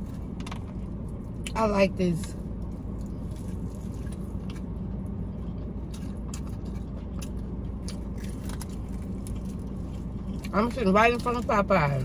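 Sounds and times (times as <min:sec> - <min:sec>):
car cabin hum: 0:00.0 - 0:12.0
crunching of chicken being chewed: 0:02.6 - 0:11.3.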